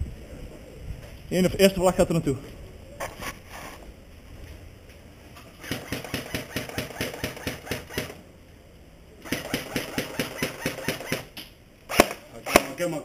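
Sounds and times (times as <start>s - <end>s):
airsoft gun firing full-auto: 5.6s - 8.2s, 9.2s - 11.3s, 11.9s - 12.9s.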